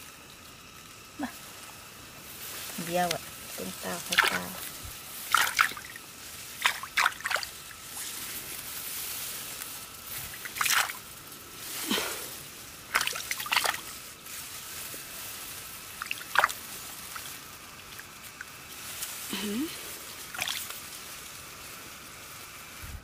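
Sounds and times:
water dripping and trickling: 0.3s - 8.2s, 10.0s - 11.2s, 12.7s - 19.3s, 20.0s - 21.5s
water splashing: 2.4s - 9.3s, 10.0s - 21.0s.

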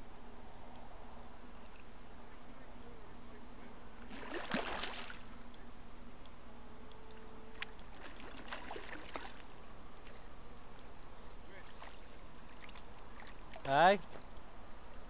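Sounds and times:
fish splashing in water: 4.1s - 5.4s, 7.6s - 9.5s.

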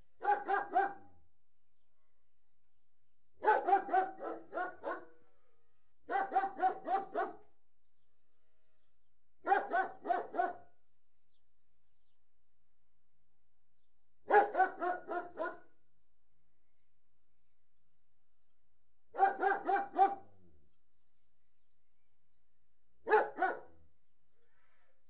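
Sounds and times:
large dog barking deeply: 0.2s - 1.2s, 3.4s - 5.2s, 6.1s - 7.5s, 9.4s - 10.7s, 14.3s - 15.8s, 19.2s - 20.4s, 23.1s - 23.8s.

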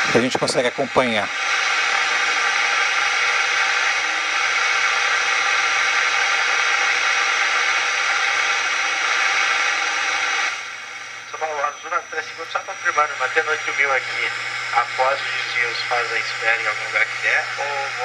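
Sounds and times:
radio receiver hiss: 0.0s - 18.0s.

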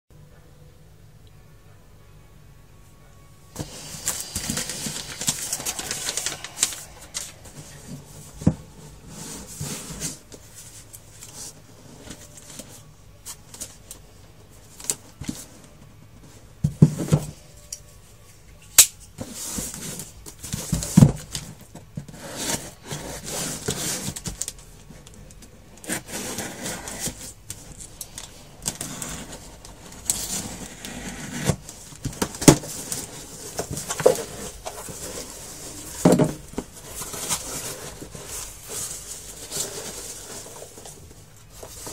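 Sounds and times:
plastic wrap crinkling: 3.6s - 8.1s
box thumping: 35.8s - 37.5s.

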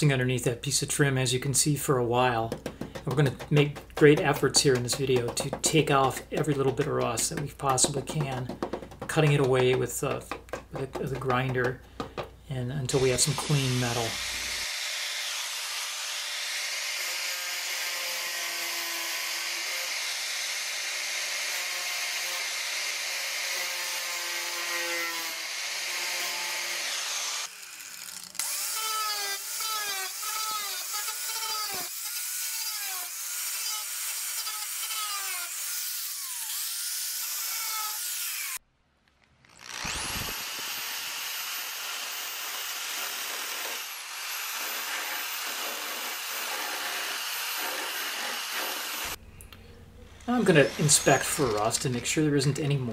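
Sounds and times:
angle grinder cutting sheet metal: 2.3s - 12.2s, 12.9s - 38.6s, 39.4s - 49.2s, 50.2s - 52.6s
high-pitched grinder whine: 39.5s - 41.4s, 50.2s - 52.0s.

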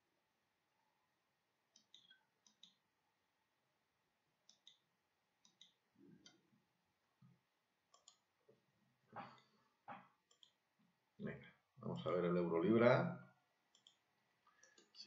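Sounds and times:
computer mouse clicks: 1.7s - 2.8s, 4.4s - 6.4s, 7.9s - 8.3s, 10.2s - 10.6s, 13.7s - 15.0s.

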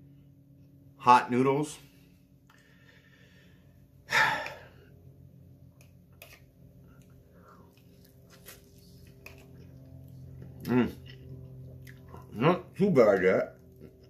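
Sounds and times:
person chewing: 5.8s - 12.4s, 13.6s - 14.0s.

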